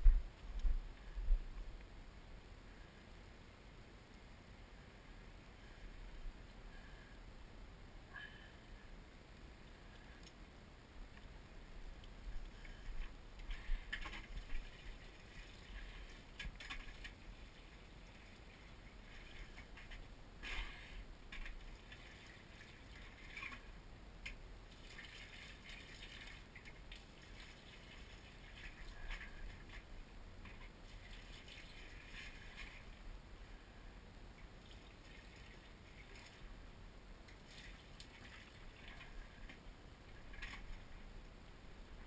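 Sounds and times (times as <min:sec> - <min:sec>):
rustling of plants: 0:11.1 - 0:33.7, 0:34.3 - 0:41.2.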